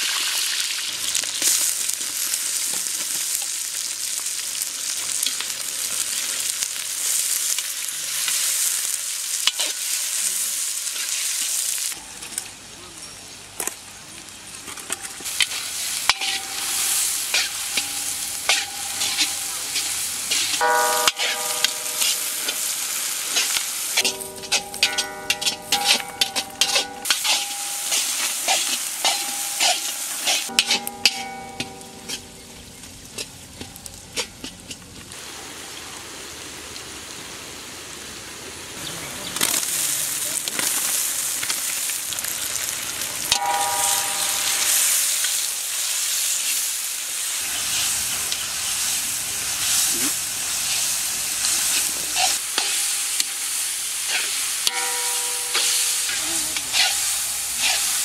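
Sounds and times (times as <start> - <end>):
loud steady sizzle: 0.0 - 58.0
onions frying in hot oil: 0.0 - 58.0
spatula scraping metal pan: 15.3 - 32.4, 52.2 - 53.2, 54.1 - 58.0.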